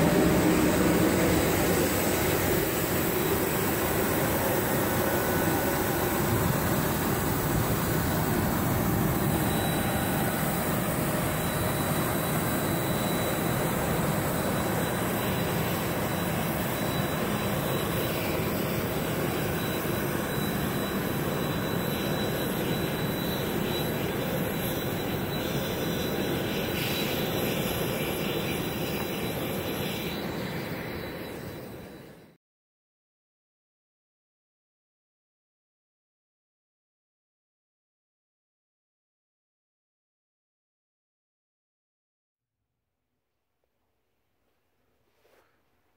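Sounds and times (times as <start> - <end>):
jet turbine whine: 0.0 - 32.4
thin high tone: 0.3 - 32.4.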